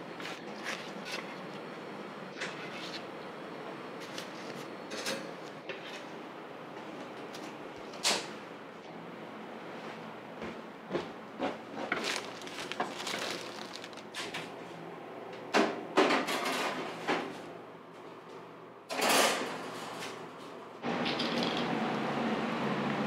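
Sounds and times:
baking trays and utensils clattering: 4.0s - 6.1s, 11.4s - 14.6s, 15.6s - 17.4s, 18.9s - 20.2s.

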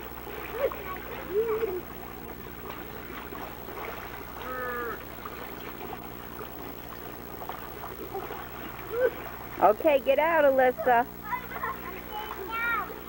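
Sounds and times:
steady low hum: 0.0s - 13.0s
water splashing in a pool: 0.0s - 13.0s
child calling: 11.2s - 13.0s.

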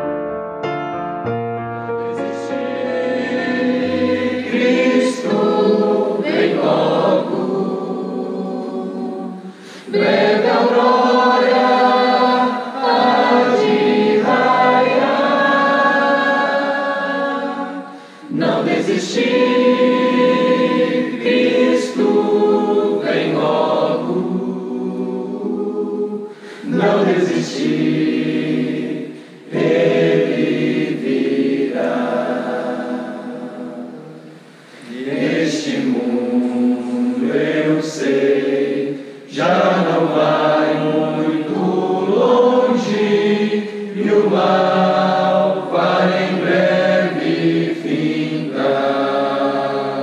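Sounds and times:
piano notes: 0.0s - 5.5s
choir singing a hymn: 1.9s - 50.0s.

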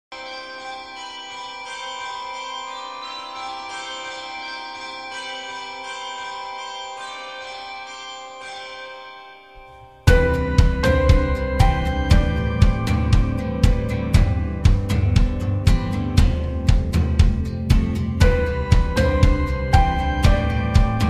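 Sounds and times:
soft bell-like tones: 0.1s - 14.6s, 18.0s - 21.0s
music with a beat: 10.0s - 21.0s.

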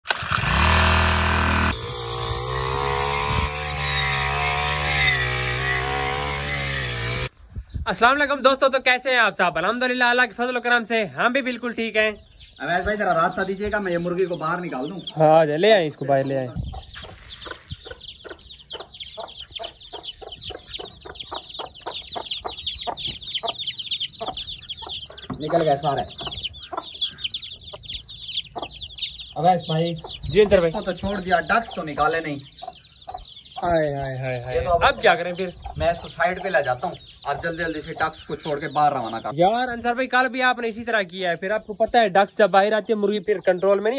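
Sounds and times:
brush cutter engine running: 0.0s - 7.3s
chicks peeping: 11.7s - 43.9s
hen clucking: 12.9s - 39.8s.

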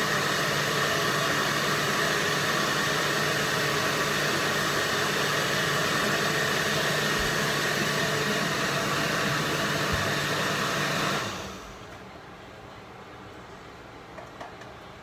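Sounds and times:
blender running: 0.0s - 11.8s.

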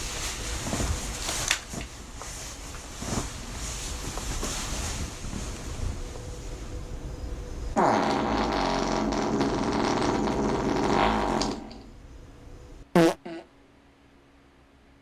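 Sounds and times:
long loud fart: 7.8s - 11.9s, 12.9s - 13.5s.

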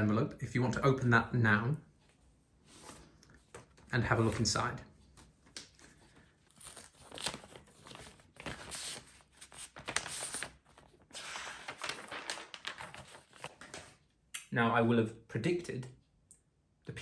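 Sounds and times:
paper envelope tearing: 6.5s - 14.0s.

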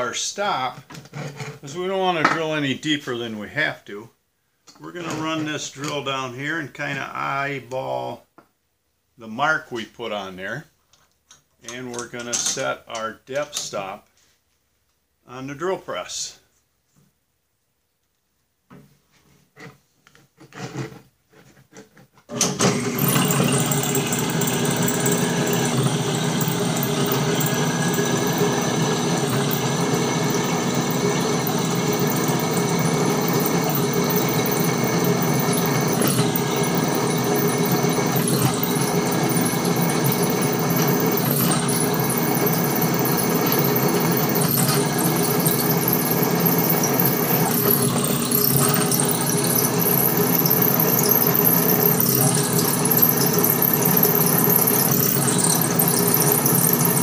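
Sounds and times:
drill press drilling steel: 22.3s - 57.0s.

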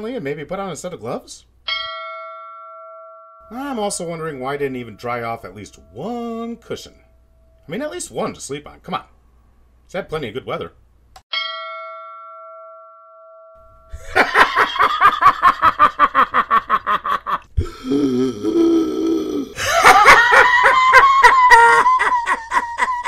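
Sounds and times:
bell ding: 1.7s - 7.8s, 11.3s - 13.9s.

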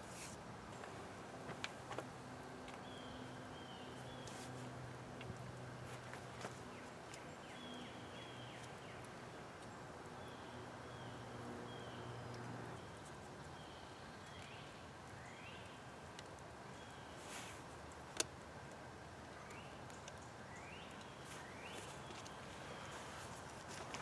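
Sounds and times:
bird chirping: 2.8s - 4.6s, 6.4s - 15.9s, 19.4s - 23.4s.

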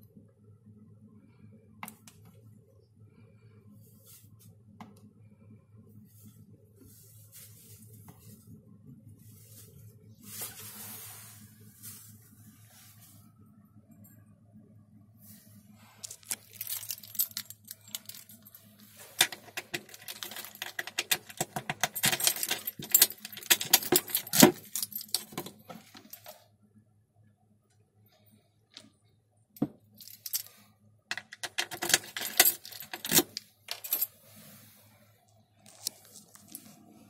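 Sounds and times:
key jangling against metal lock: 16.1s - 18.6s, 19.2s - 26.4s, 31.1s - 34.1s.

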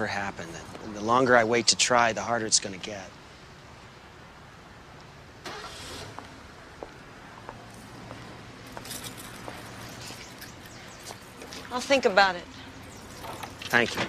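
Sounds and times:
car passing: 5.3s - 14.0s.

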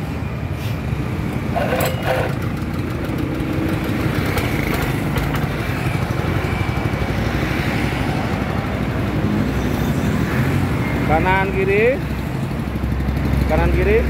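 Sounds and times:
single-cylinder petrol engine running: 1.2s - 7.6s, 12.0s - 14.0s.

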